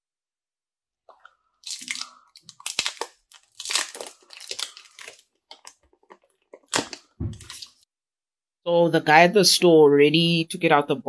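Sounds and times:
plastic wrap peeling and crinkling: 1.2 - 7.8.

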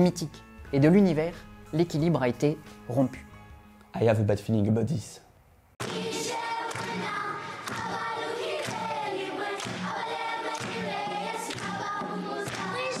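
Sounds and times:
choir-like voices: 5.8 - 13.0.

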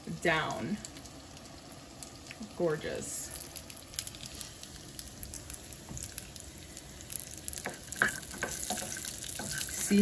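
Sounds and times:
nuts sizzling in frying pan: 0.0 - 10.0
wooden spoon stirring: 7.6 - 10.0.

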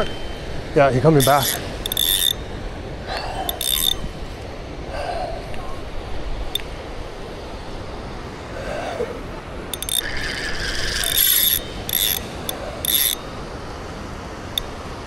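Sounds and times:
fishing reel gears whirring: 0.0 - 2.6, 3.3 - 4.2, 9.7 - 13.3.

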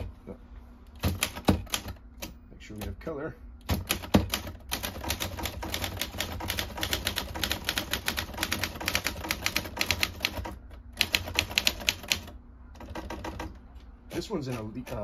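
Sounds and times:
manual typewriter typing: 1.0 - 3.0, 3.6 - 15.0.

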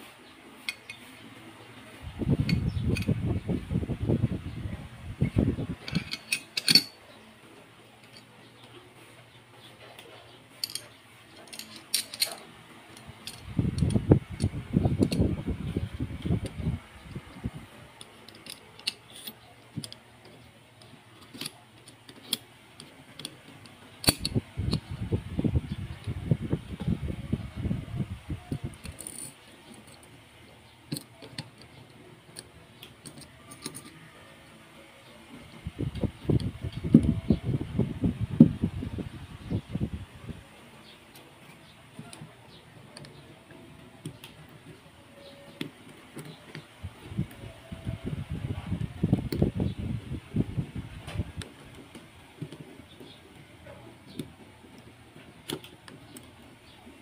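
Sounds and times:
light metal clicks and taps: 5.8 - 7.0
pistol parts clicking: 5.8 - 7.0, 10.6 - 15.2, 17.9 - 24.9, 28.8 - 30.1, 30.9 - 34.0.

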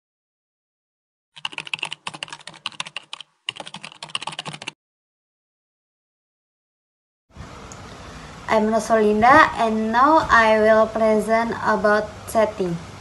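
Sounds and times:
keyboard typing: 1.4 - 4.8.

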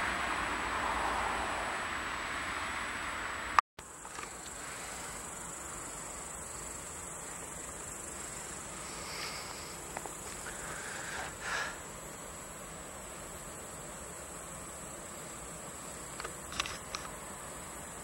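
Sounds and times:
insects chirping: 0.0 - 18.0
sharp click: 16.2 - 17.2.

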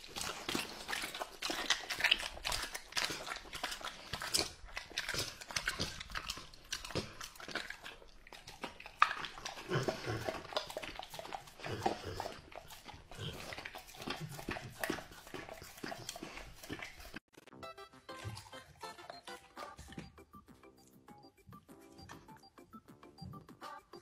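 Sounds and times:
teeth clicking against plate: 0.0 - 17.2
dog licking and chewing food: 0.0 - 17.3, 18.0 - 22.6.

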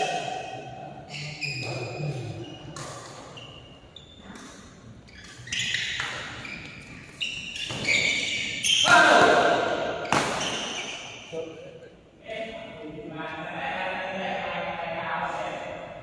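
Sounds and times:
shoes squeaking on court: 1.1 - 9.3, 10.0 - 11.3.

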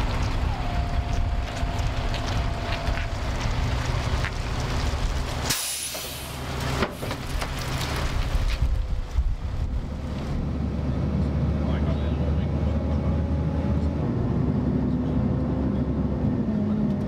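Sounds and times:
truck engine rumble: 0.0 - 17.0
tyres hissing through slush: 5.4 - 6.5.

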